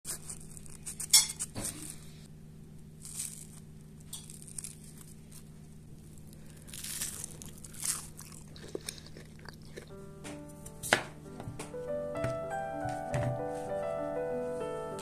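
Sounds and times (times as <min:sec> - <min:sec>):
fried crust crackling: 0:00.1 - 0:02.2, 0:02.8 - 0:10.0
faint low hum: 0:00.1 - 0:15.0.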